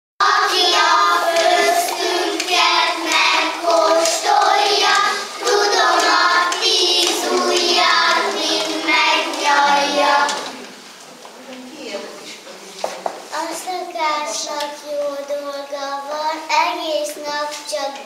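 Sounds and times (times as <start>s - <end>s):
children singing in unison: 0.2s - 10.8s.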